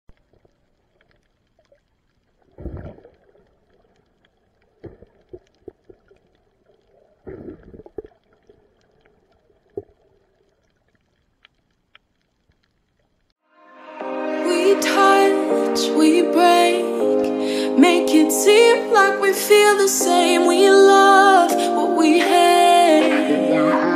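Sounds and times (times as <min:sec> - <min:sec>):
muffled underwater rushes: 0:00.1 - 0:10.8
faint underwater clicks: 0:00.1 - 0:13.4.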